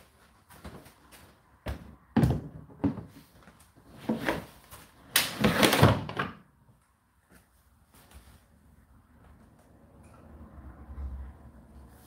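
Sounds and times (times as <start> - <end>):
plastic knocks and clunks: 1.7 - 3.2.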